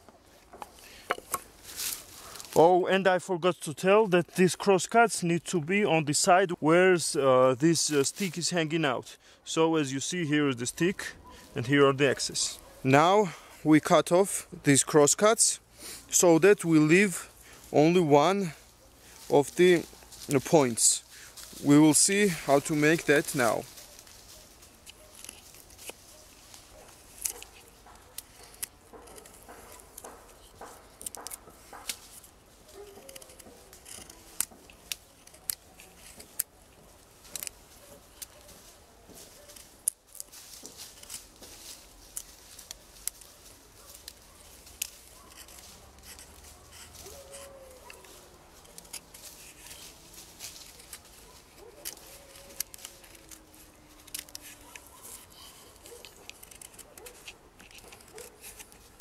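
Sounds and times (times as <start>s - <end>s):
knife carving wood: 24.8s - 38.5s, 42.1s - 49.9s, 50.5s - 59.0s.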